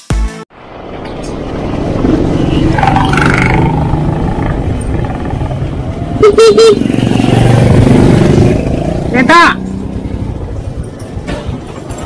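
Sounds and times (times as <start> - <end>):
motorcycle tricycle engine running: 0.7 - 12.0
horn beeps: 6.1 - 7.5.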